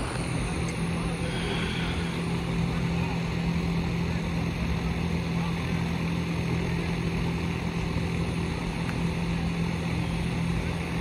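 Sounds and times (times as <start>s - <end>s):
low engine drone: 0.0s - 11.0s.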